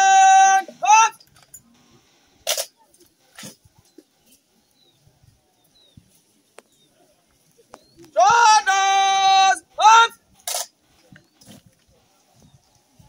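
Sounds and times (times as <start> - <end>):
person shouting command: 0.0 - 1.2, 8.2 - 10.2.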